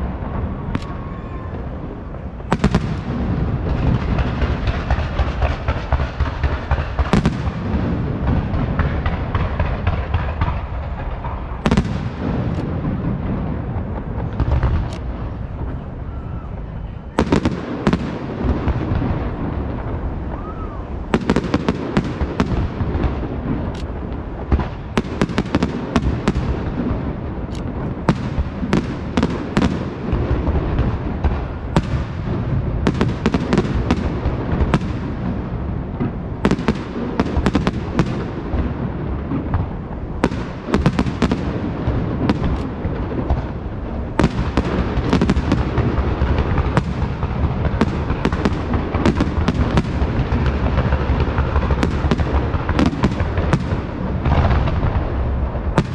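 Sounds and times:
sharp firework bangs: 0.0 - 16.5, 17.1 - 55.9
dense firework crackling: 0.0 - 55.9
fireworks shells bursting rumble: 17.3 - 55.9.

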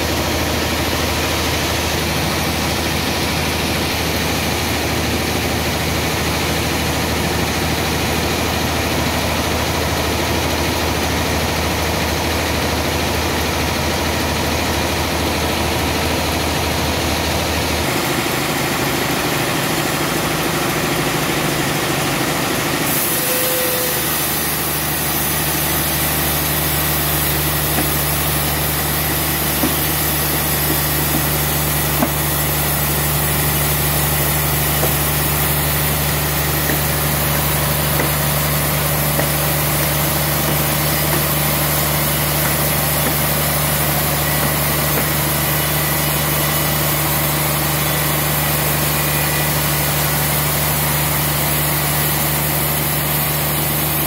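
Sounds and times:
band saw motor humming: 15.1 - 54.0.

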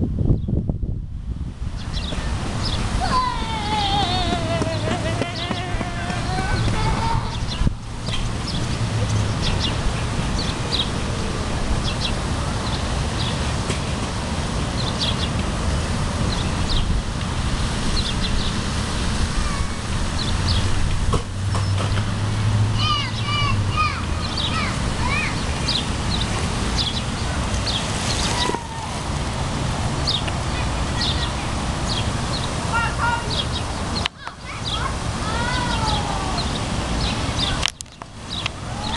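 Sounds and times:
wind rumbling on microphone: 0.0 - 32.8
birds chirping: 1.8 - 11.0, 11.8 - 13.5, 14.7 - 17.0, 19.6 - 20.8, 22.8 - 28.9, 30.0 - 38.9.

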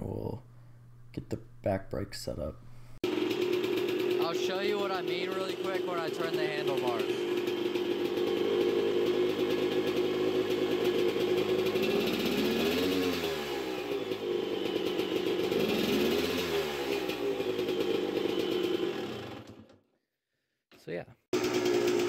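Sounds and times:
two-stroke engine revving: 3.0 - 19.8, 21.4 - 22.0.

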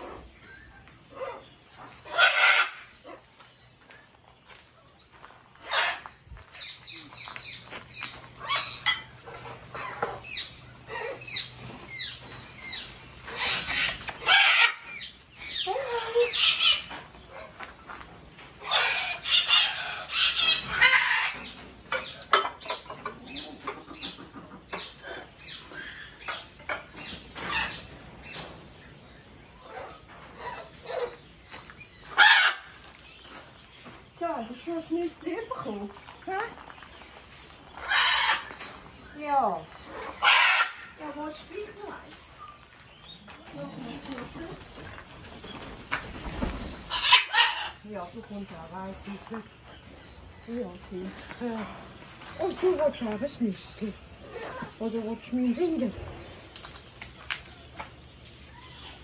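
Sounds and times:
macaws squawking: 0.0 - 3.3, 5.6 - 17.1, 37.6 - 42.2, 46.8 - 48.0.

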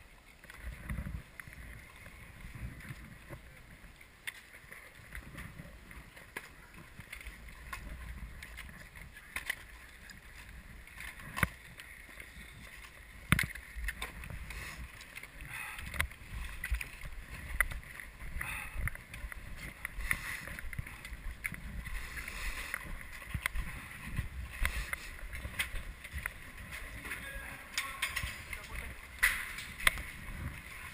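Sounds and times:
skis and ski boots clicking: 0.0 - 30.9
faint voices: 26.8 - 29.2.

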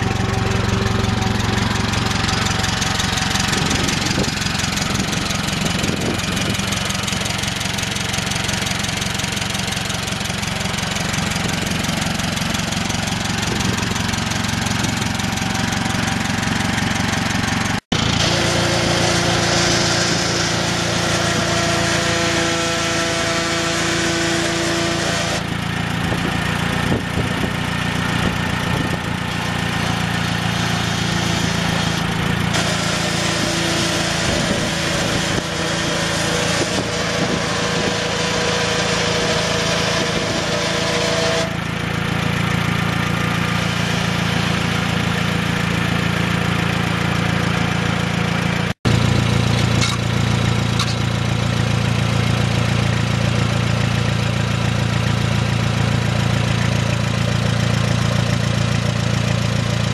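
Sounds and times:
tractor engine idling: 0.0 - 59.9.

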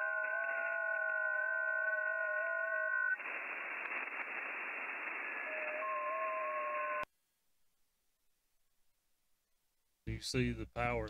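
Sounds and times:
radio band hiss: 3.1 - 7.0.

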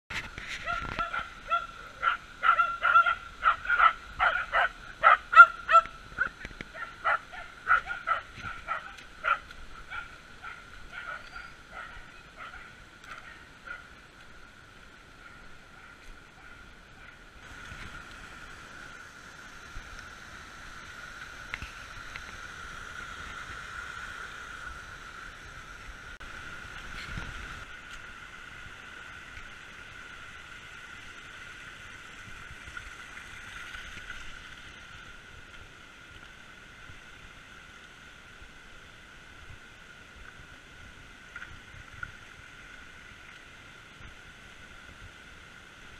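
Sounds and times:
creek rushing over rocks: 0.1 - 45.9
dog barking rapidly: 0.6 - 5.9, 6.8 - 13.8.

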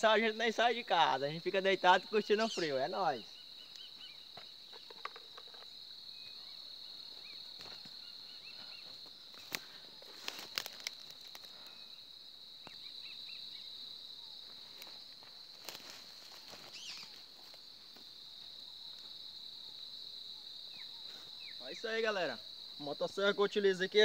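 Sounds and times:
insects buzzing: 0.0 - 24.0
bird chirps: 2.2 - 9.0, 16.7 - 17.2.

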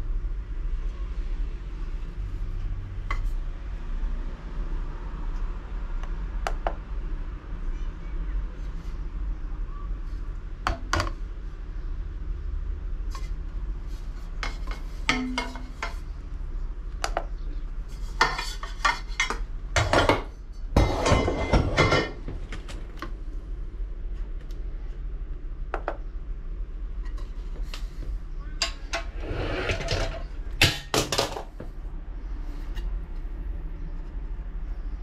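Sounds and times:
rattling and rustling: 17.9 - 23.2.

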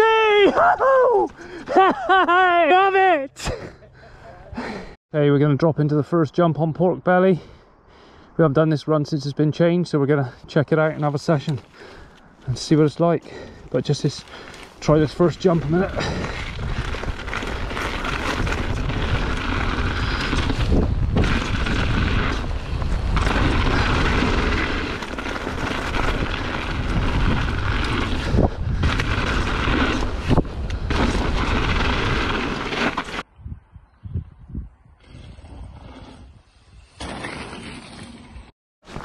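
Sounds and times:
bike tyres rolling on gravel: 11.0 - 33.3
wind buffeting microphone: 14.9 - 25.0, 25.6 - 32.4, 33.2 - 36.9.

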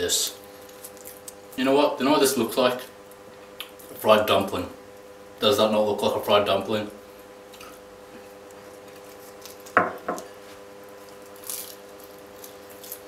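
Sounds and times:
steady background hum: 0.0 - 13.0
pastry crunching: 0.3 - 1.6, 7.5 - 13.0.

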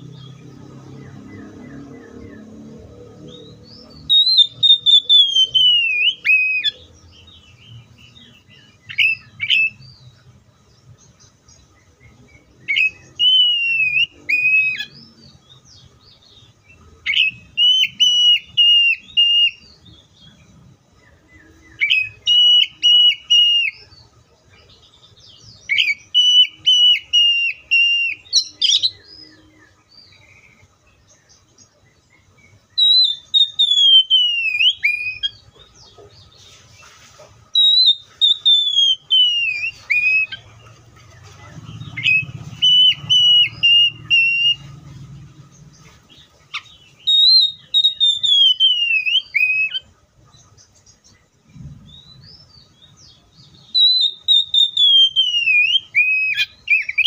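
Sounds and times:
bird singing whistled phrases: 3.3 - 6.9, 7.8 - 10.1, 12.6 - 15.3, 17.1 - 20.2, 21.4 - 23.9, 25.6 - 29.6, 32.7 - 35.4, 37.5 - 40.4, 41.9 - 44.8, 46.5 - 49.9, 51.8 - 57.0.

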